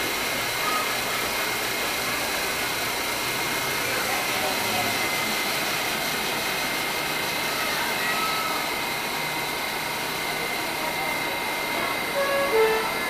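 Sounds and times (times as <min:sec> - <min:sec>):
train ventilation hum: 0:00.0 - 0:13.0
thin high whine: 0:07.3 - 0:13.0.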